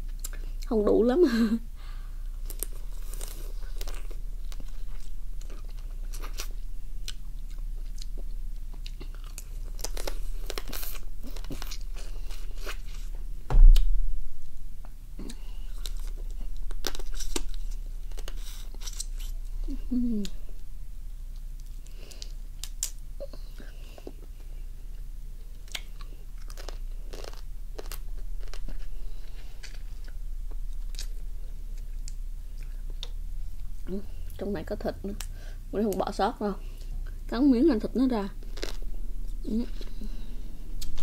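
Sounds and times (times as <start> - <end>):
chewing and crunching crab: 2.4 - 13.1, 25.5 - 33.2
loud dull thump: 13.4 - 14.7.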